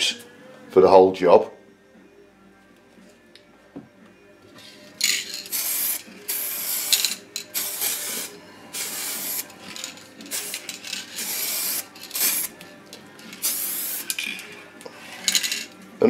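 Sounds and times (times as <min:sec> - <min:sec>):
aerosol can spraying: 0:05.0 - 0:12.6, 0:13.3 - 0:14.3.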